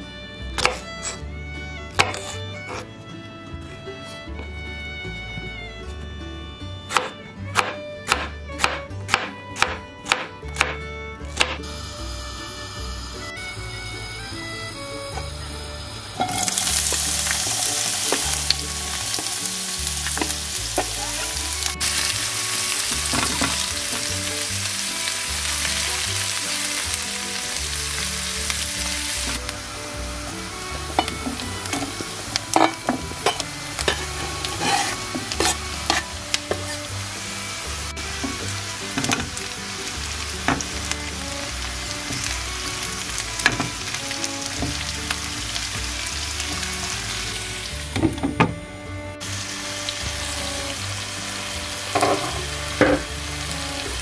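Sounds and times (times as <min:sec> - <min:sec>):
vegetables sizzling in hot oil: 0:15.1 - 0:48.0, 0:49.2 - 0:54.0
spatula scraping a pan: 0:30.9 - 0:36.9.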